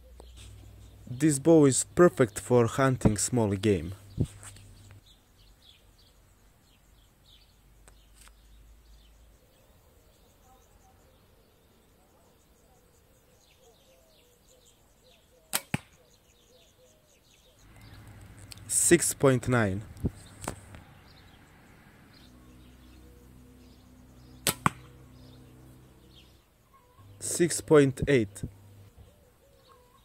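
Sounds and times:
faint bird chirps: 0.0s - 1.3s, 3.8s - 18.7s, 19.6s - 30.0s
bow shooting arrow cracks: 15.5s - 16.0s, 20.0s - 20.9s, 24.4s - 25.0s.

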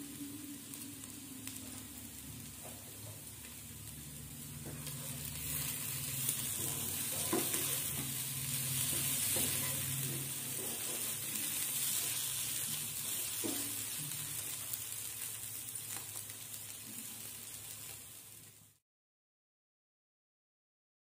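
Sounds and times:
food sizzling in a frying pan: 0.0s - 18.8s
wooden spatula stirring in pan: 1.4s - 18.0s.

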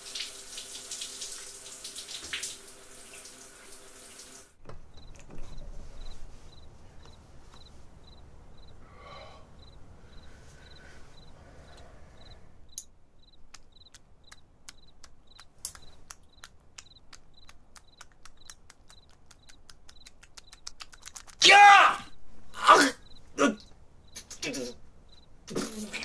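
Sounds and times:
cricket chirping: 4.8s - 21.4s, 22.0s - 26.0s
sharp clicks: 12.7s - 21.4s.

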